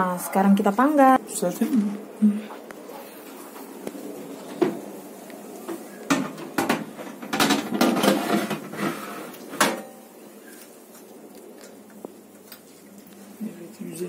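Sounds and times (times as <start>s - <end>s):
metal baking tray clattering: 6.1s - 9.0s.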